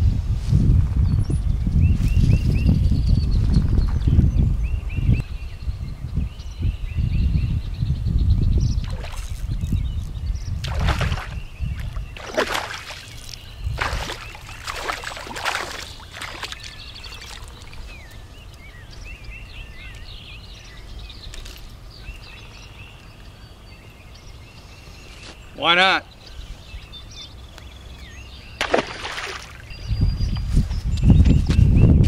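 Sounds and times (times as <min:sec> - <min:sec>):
wind rumbling on microphone: 0:00.0 - 0:25.2, 0:26.1 - 0:32.0
small birds chirping: 0:01.0 - 0:32.0
fish splashing at water surface: 0:10.7 - 0:11.4, 0:12.2 - 0:17.8, 0:28.6 - 0:29.6.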